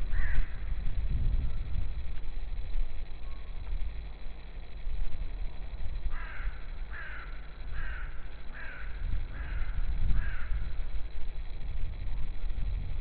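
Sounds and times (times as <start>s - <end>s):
steady low rumble: 0.0s - 13.0s
crow cawing: 0.1s - 0.6s, 6.1s - 10.8s.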